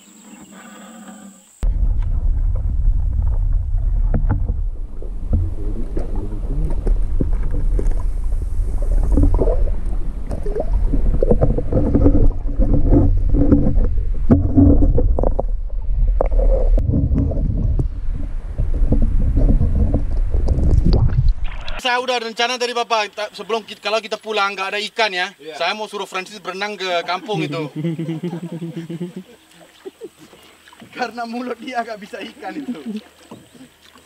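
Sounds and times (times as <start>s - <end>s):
muffled underwater sloshing: 1.6s - 21.8s, 27.1s - 34.0s.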